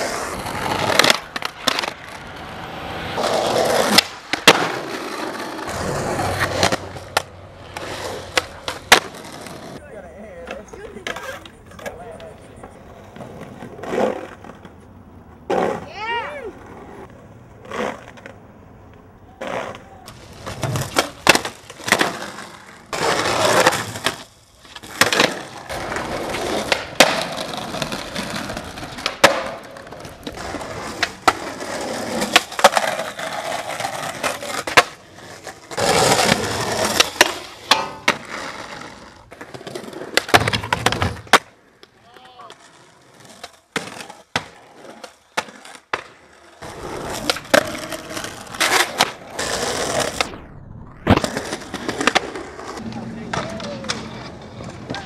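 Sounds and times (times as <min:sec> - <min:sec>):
skateboard clacks: 0:00.0 - 0:50.3, 0:51.0 - 0:55.0
skateboard wheels rolling on concrete: 0:00.0 - 0:55.0.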